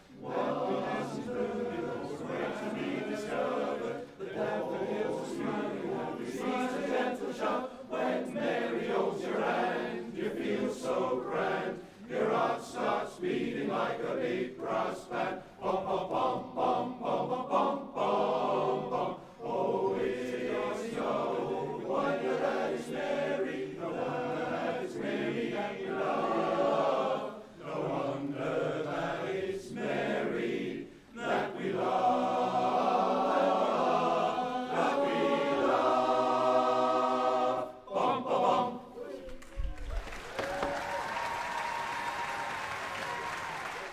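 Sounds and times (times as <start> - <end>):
chorus singing a cappella: 0.0 - 39.4.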